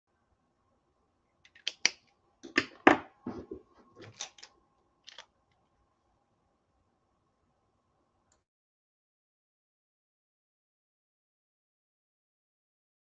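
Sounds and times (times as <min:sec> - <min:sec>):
faint steady hum: 0:00.1 - 0:08.4.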